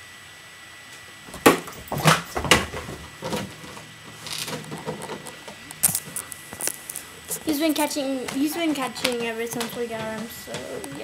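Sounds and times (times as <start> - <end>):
dog knocks and scuffles: 1.3 - 3.8.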